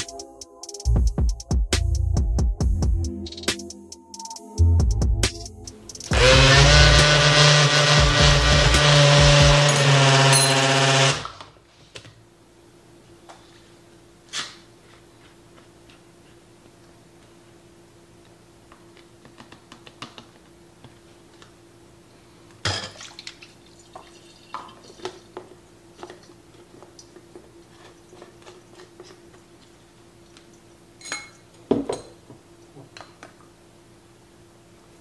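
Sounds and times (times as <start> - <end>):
faint steady hum: 11.4 - 35.0.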